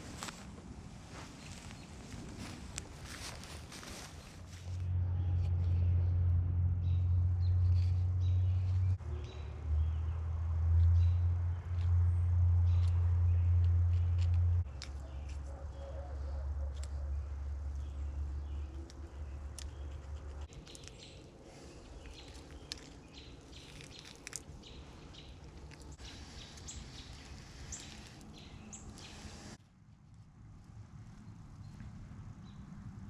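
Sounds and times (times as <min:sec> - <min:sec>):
birds chirping: 0:06.8 - 0:29.6.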